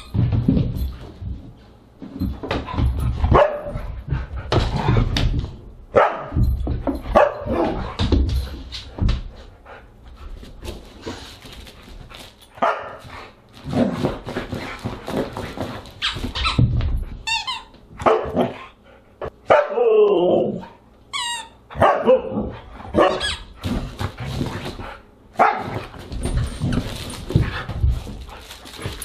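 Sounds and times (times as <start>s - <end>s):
dog barking and yipping: 21.8s - 22.3s, 23.0s - 23.4s.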